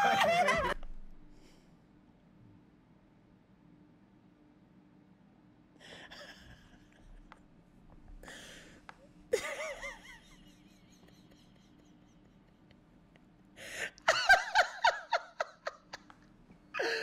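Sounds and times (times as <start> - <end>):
man wheezing laughter: 0.0 - 0.8, 9.4 - 12.7
breathy gasps: 8.2 - 8.8, 13.6 - 14.0.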